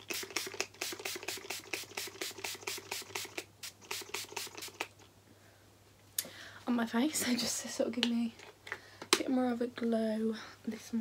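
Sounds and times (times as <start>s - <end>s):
spray bottle misting: 0.0s - 5.0s.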